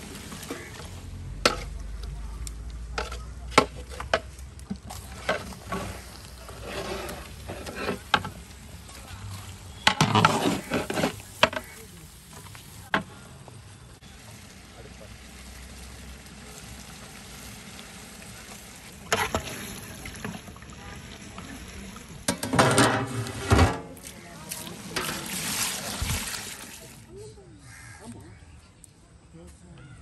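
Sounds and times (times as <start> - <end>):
ladle scraping in metal pot: 4.9 - 8.4, 9.8 - 11.7, 22.3 - 24.1
metal clanks against pot: 22.3 - 23.9.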